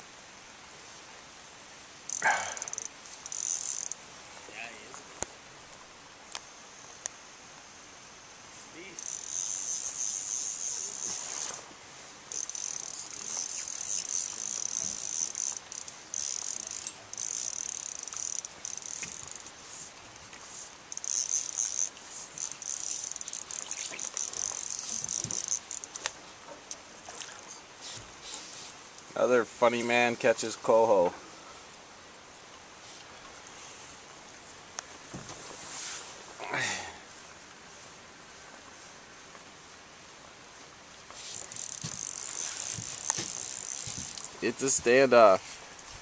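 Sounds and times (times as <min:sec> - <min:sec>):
fishing reel drag buzzing: 0:02.1 - 0:04.0, 0:08.8 - 0:11.7, 0:12.3 - 0:19.8, 0:20.4 - 0:26.2, 0:41.1 - 0:44.8.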